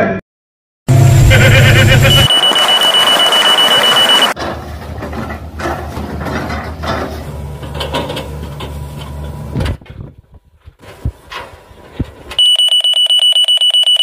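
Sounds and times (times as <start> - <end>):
excavator diesel engine running: 0.9 - 9.7.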